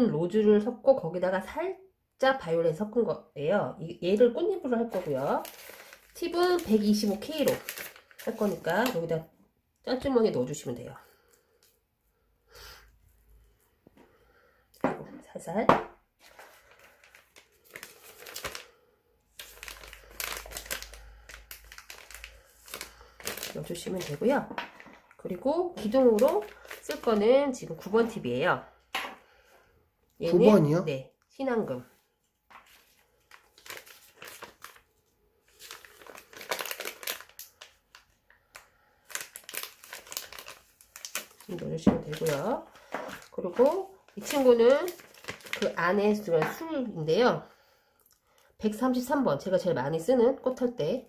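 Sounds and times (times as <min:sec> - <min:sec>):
plastic bag crinkling: 0:04.8 - 0:09.2, 0:16.2 - 0:28.0, 0:32.5 - 0:47.0.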